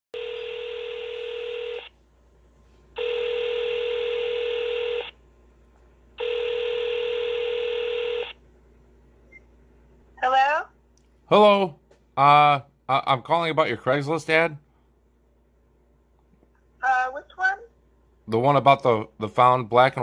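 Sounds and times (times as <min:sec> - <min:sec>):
telephone ringback tone: 0:00.2 - 0:01.9, 0:03.0 - 0:05.2, 0:06.2 - 0:08.4.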